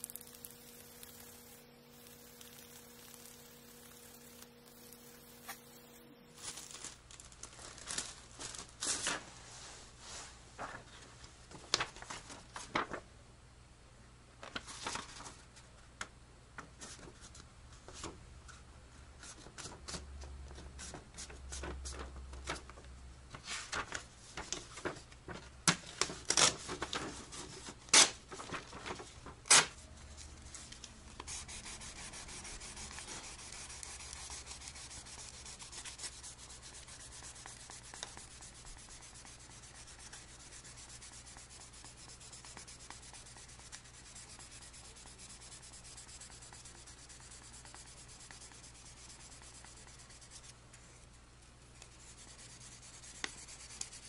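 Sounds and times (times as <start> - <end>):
sandpaper rubbing on wood: 0.0 - 6.0, 31.2 - 50.5, 52.0 - 54.0
sandpaper crackling being folded: 0.0 - 9.2, 11.7 - 13.0, 14.6 - 15.4, 23.3 - 25.4, 26.0 - 50.6, 51.8 - 54.0.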